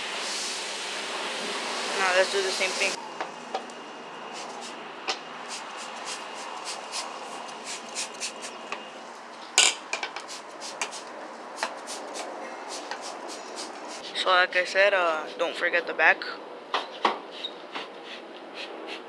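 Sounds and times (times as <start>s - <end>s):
steady hiss: 0.0s - 3.0s
spray bottle squirting: 5.5s - 8.6s.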